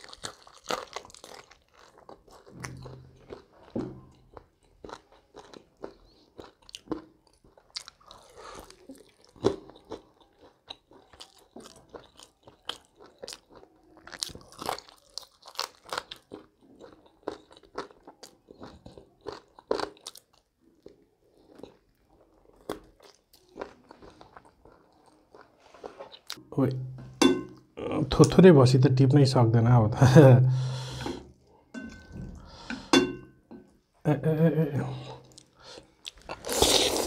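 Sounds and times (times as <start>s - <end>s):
crunchy bites and chewing: 0.0s - 26.4s, 35.2s - 37.0s.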